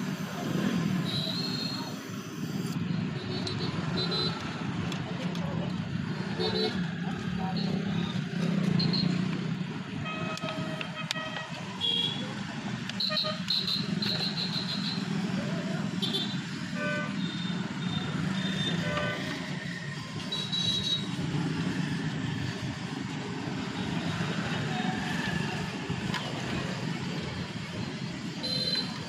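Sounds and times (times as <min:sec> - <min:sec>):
road traffic hum: 0:00.0 - 0:29.0
vehicle horns tooting: 0:13.0 - 0:15.1.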